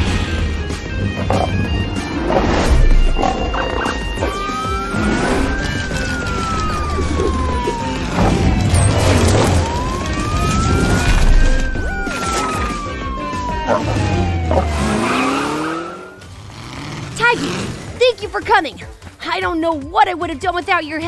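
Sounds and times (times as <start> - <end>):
cartoon police siren wailing: 3.2 - 16.3.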